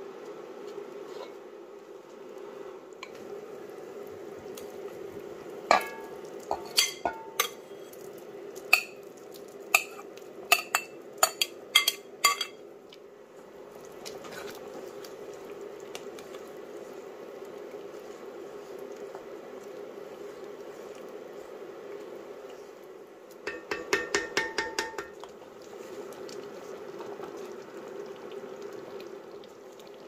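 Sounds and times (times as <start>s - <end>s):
low background noise: 0.0s - 30.0s
stirring: 4.4s - 30.0s
metal spoon clinking on ceramic: 9.8s - 12.6s.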